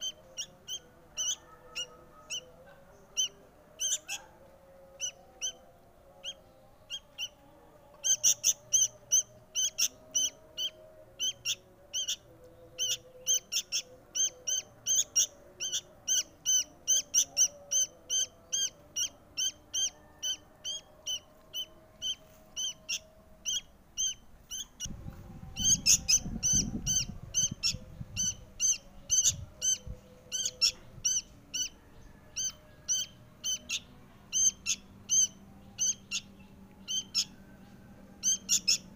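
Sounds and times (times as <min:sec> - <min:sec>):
bird fledgling chirping: 0:00.0 - 0:04.2, 0:08.0 - 0:24.9, 0:25.5 - 0:37.4, 0:38.2 - 0:38.9
low rumble: 0:24.8 - 0:32.2.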